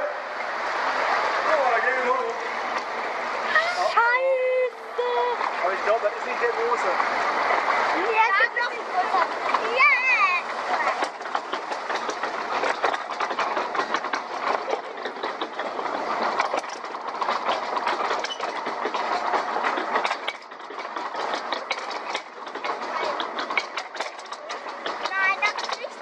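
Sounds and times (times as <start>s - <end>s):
chain drive rattling and clacking: 5.7s - 26.0s.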